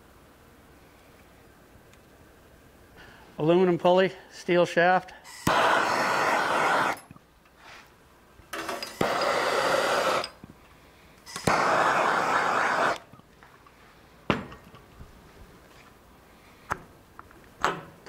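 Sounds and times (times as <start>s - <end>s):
gas torch rushing: 5.3s - 7.1s, 8.6s - 10.4s, 11.3s - 13.1s.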